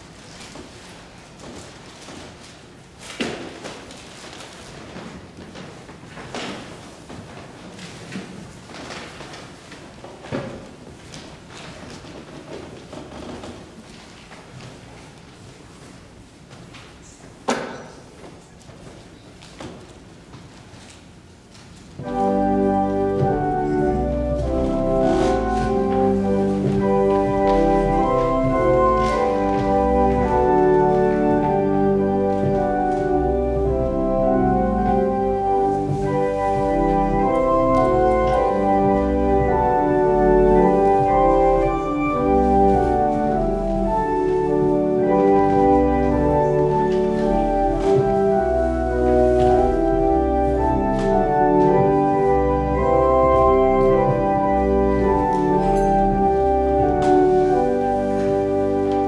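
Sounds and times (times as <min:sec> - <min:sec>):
organ playing slow chords: 0:22.0 - 0:59.0.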